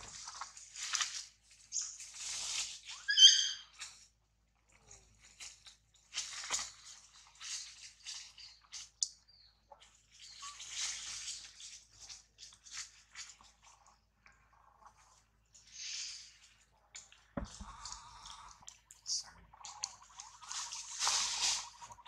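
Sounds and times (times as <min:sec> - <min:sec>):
leaves and branches rustling: 0:00.0 - 0:04.1, 0:04.9 - 0:09.0, 0:09.8 - 0:14.0, 0:19.0 - 0:22.0
monkey high-pitched squeal: 0:03.0 - 0:03.7.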